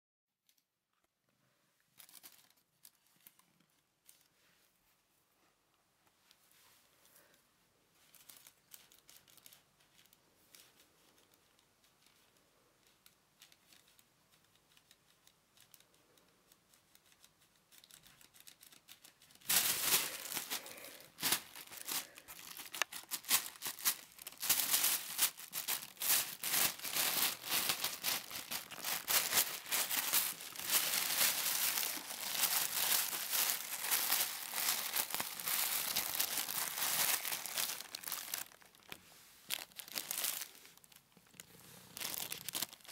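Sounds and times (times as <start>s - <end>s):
plastic bag rustling: 18.6s - 42.9s.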